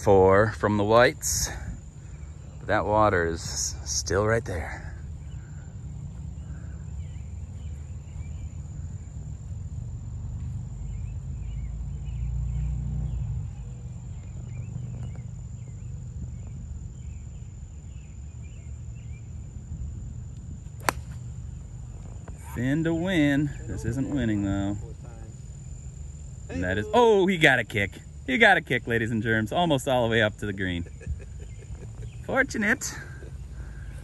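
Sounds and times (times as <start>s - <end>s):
wind rumble on microphone: 1.2s - 2.7s, 5.0s - 24.1s
bird chirps: 10.8s - 19.4s, 29.3s - 34.0s
high-pitched insect drone: 21.6s - 28.3s.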